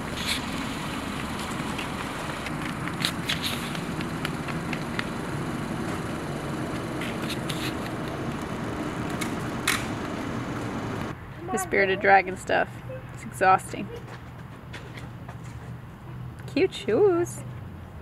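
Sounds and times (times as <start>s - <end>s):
footsteps on pavement: 0.0s - 11.2s, 13.8s - 16.3s
traffic and engine hum: 0.0s - 18.0s.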